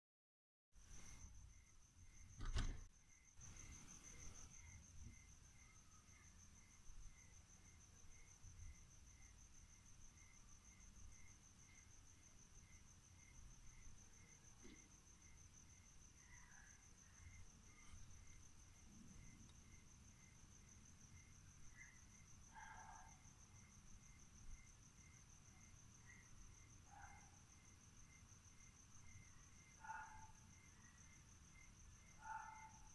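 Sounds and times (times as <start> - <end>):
crickets chirping: 0.8 - 32.9.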